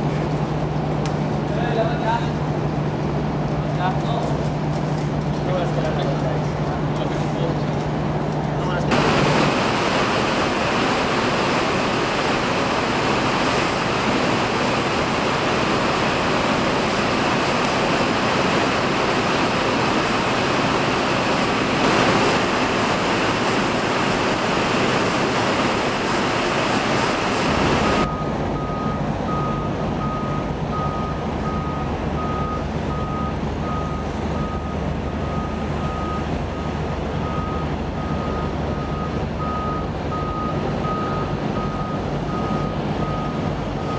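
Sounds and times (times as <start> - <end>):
low engine hum: 0.0 - 43.9
reversing alarm beeping: 27.8 - 43.9.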